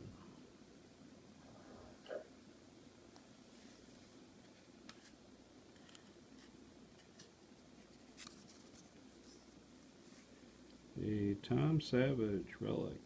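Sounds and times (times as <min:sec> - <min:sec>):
trading cards sliding and flipping: 0:04.4 - 0:09.5.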